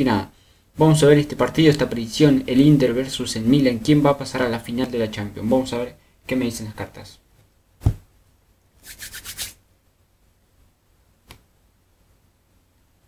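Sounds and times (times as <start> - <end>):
soft tap: 7.4 - 8.0
card deck knocking on table: 7.8 - 8.1.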